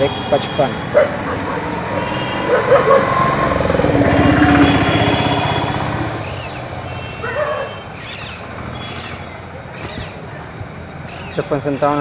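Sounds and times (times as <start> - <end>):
vehicle engine passing by: 0.8 - 9.2.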